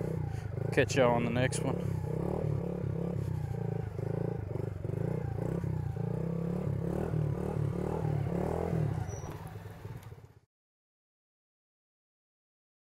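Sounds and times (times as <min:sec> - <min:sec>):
small motorbike engine running: 0:00.0 - 0:10.4.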